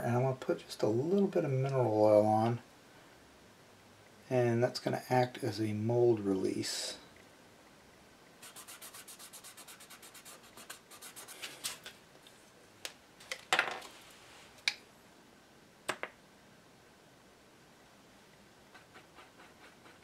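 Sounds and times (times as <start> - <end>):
cotton swab scrubbing: 8.4 - 11.9.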